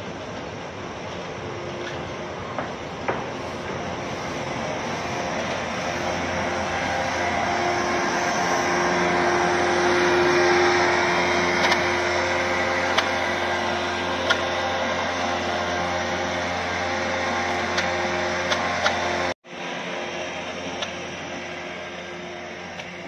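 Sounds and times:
low hum: 0.0 - 23.0
steam hissing: 0.0 - 23.0.

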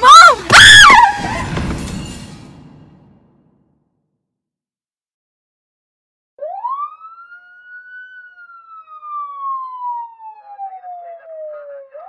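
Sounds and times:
police siren wailing: 0.0 - 1.4, 6.4 - 12.0.

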